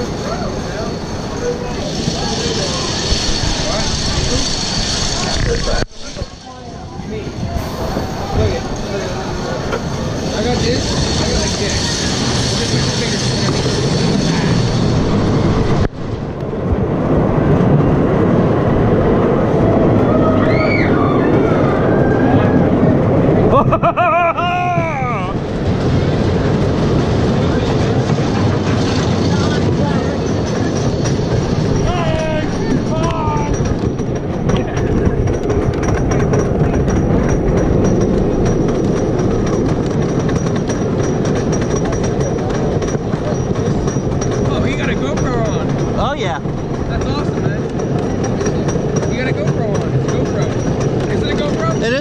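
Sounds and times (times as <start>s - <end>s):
high squeal: 0.0s - 15.9s, 19.7s - 22.9s
roller coaster rumbling on track: 0.0s - 52.0s
rapid clacking of chain lift: 9.7s - 15.9s, 25.6s - 52.0s.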